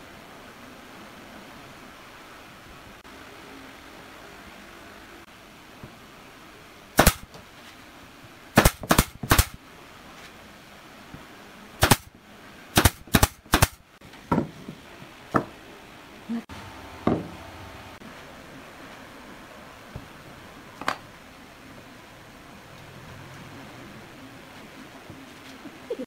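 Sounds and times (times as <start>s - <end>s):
nail gun firing: 7.0s - 7.3s, 8.6s - 9.6s, 11.8s - 12.1s, 12.8s - 13.8s.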